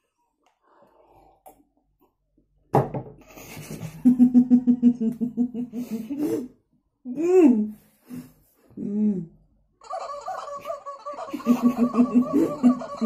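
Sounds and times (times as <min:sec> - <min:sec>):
muffled laughter bursting out: 0:10.5 - 0:13.0.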